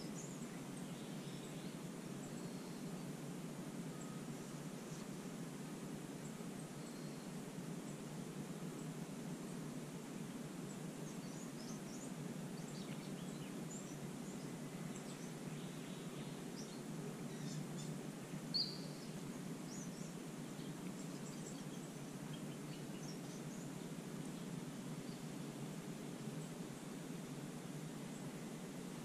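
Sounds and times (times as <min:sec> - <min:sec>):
small birds chirping: 0:00.0 - 0:29.0.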